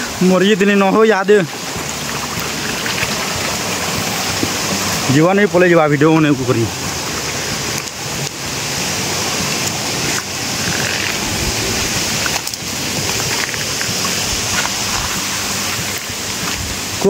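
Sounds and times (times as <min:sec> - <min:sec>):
water rushing: 0:00.0 - 0:17.0.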